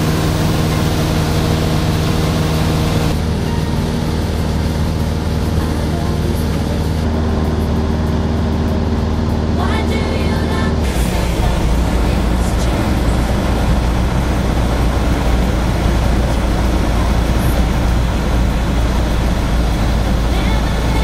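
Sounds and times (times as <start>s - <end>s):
aircraft engine and propeller rumble: 0.0s - 21.0s
wind and airframe noise: 0.0s - 21.0s.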